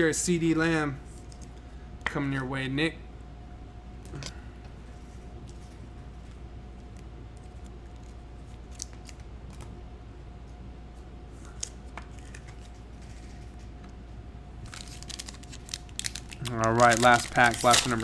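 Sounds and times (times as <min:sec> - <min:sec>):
low electrical hum: 0:00.0 - 0:18.0
cards and packaging clicking: 0:14.7 - 0:18.0.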